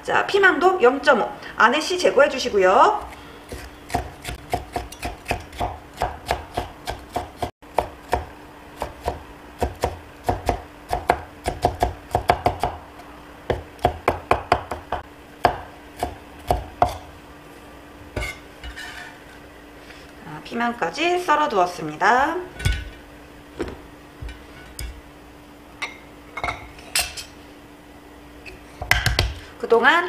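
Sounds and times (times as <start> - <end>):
cleaver chopping on wooden board: 3.5 - 12.8, 13.5 - 17.0.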